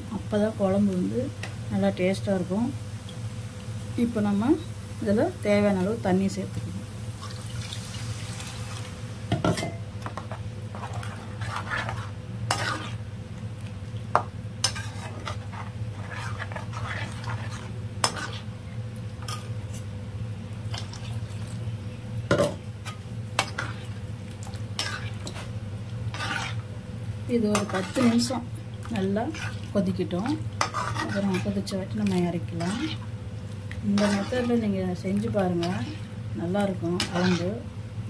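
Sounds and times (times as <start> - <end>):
steady low hum: 0.0 - 38.0
ladle stirring and scraping pan: 9.4 - 13.0, 14.2 - 18.5, 19.2 - 19.9, 22.3 - 26.7, 27.3 - 33.1, 33.7 - 37.6.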